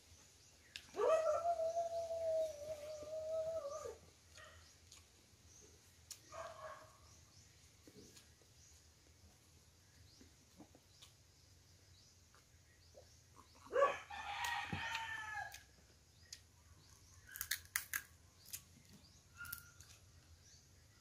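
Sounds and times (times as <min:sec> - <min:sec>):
rooster crowing: 0:13.8 - 0:15.6
crab shell cracking: 0:17.3 - 0:18.6.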